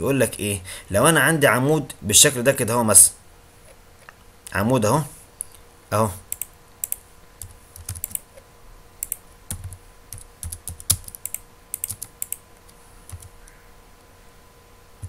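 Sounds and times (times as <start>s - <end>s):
computer keyboard typing: 6.3s - 8.3s, 9.0s - 13.6s.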